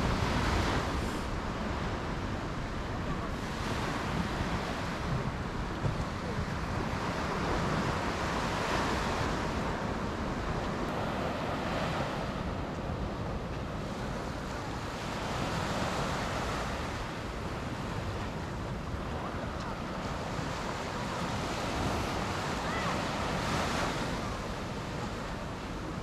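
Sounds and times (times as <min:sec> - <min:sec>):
waves breaking on shore: 0:00.0 - 0:26.0
wind rumbling on microphone: 0:00.0 - 0:26.0.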